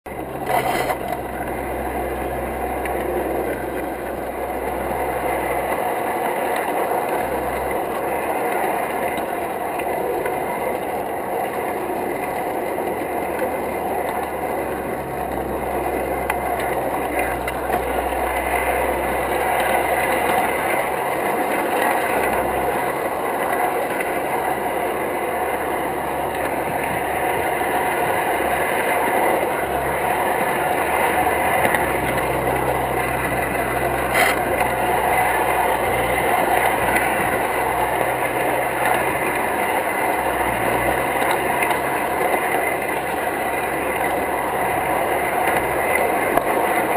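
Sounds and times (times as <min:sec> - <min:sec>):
low hum: 0:00.1 - 0:46.9
model train wheels clattering: 0:00.4 - 0:01.3, 0:30.9 - 0:43.3.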